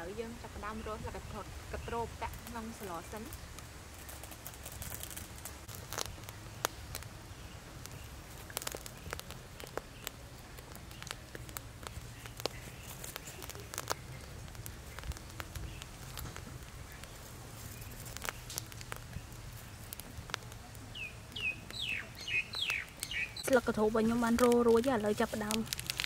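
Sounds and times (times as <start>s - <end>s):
leaves crackling on charcoal: 0.0s - 26.0s.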